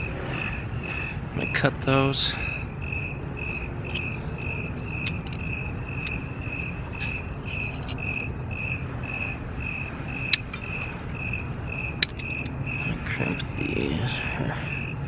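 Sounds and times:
cricket chirping: 0:00.0 - 0:15.0
low background rumble: 0:00.0 - 0:15.0
wires clicking: 0:03.4 - 0:08.4, 0:10.1 - 0:11.0, 0:11.8 - 0:13.6.

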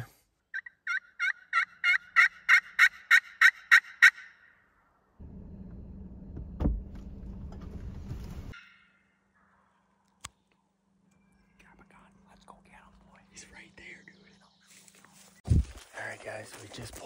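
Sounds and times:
turkey call hen yelps: 0:00.5 - 0:04.5.

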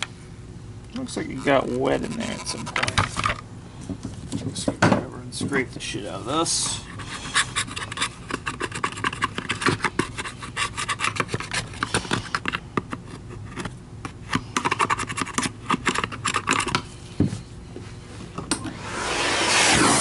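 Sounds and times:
screwdriver scraping plastic: 0:01.1 - 0:03.1.

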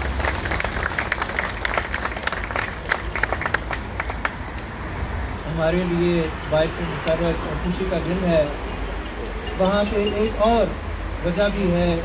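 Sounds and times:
audience applauding: 0:00.0 - 0:04.5.

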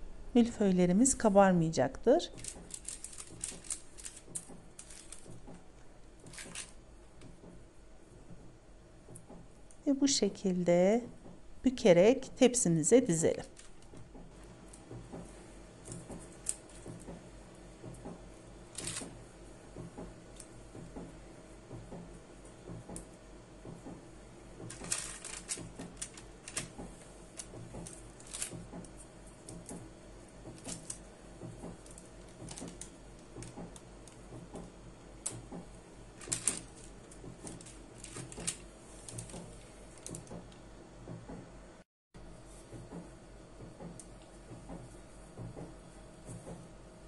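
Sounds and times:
baking paper crinkling: 0:02.3 - 0:05.3, 0:24.7 - 0:26.7.

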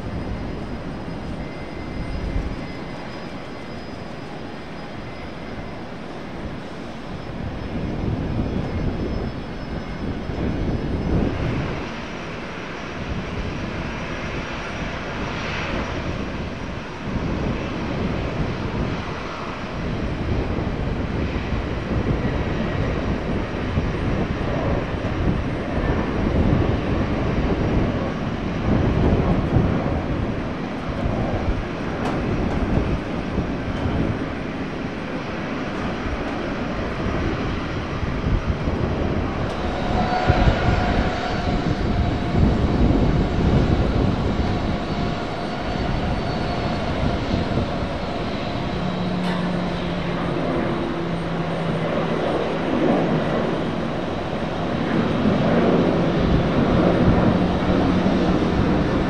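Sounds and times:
airliner engine rumble: 0:00.0 - 0:59.0.

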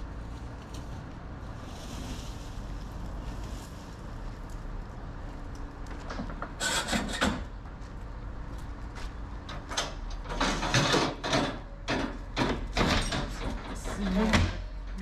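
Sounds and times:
steady low rumble: 0:00.0 - 0:06.1
metal scraping and rattling: 0:06.0 - 0:07.5, 0:09.4 - 0:15.0.

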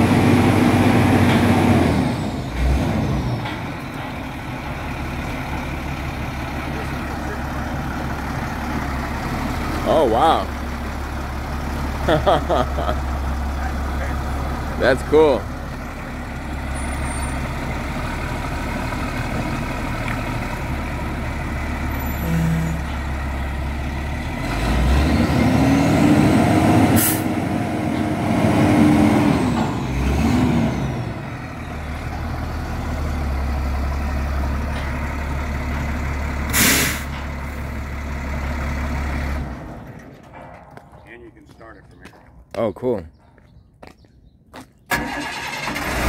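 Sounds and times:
sharp air hisses: 0:36.5 - 0:37.1.

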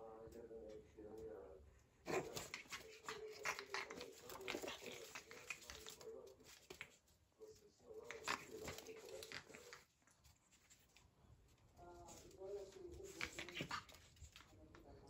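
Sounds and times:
puppies vocalizing: 0:02.1 - 0:07.0
paws clicking on tiles: 0:02.1 - 0:07.2, 0:08.0 - 0:15.0.

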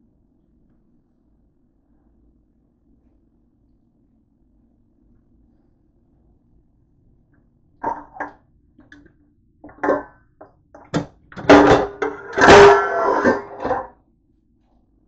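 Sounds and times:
dishes clattering in drying rack: 0:07.8 - 0:08.3, 0:09.7 - 0:10.2, 0:10.8 - 0:13.9
metal bowl ringing: 0:11.5 - 0:13.8.

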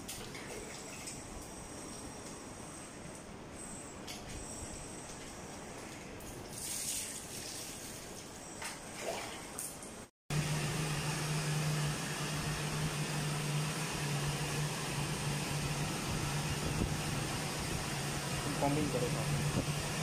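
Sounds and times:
water sounds in bath: 0:06.4 - 0:09.9
blow dryer blowing air: 0:10.3 - 0:20.0.

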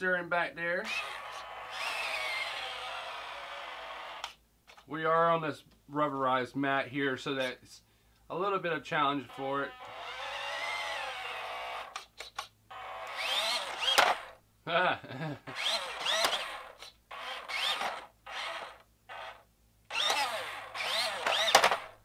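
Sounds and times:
toy truck electric motor whining: 0:00.9 - 0:04.4, 0:09.4 - 0:14.4, 0:15.5 - 0:22.0.

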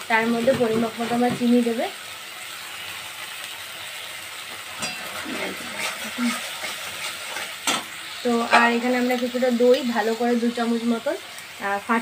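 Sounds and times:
paste sizzling in a pan: 0:00.0 - 0:12.0
spatula scraping a pan: 0:04.7 - 0:09.0.

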